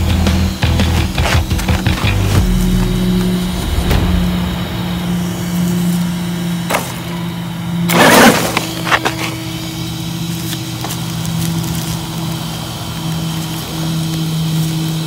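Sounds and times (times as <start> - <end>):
tyres crunching gravel: 0.0 - 9.6
electric motor hum: 0.0 - 15.0.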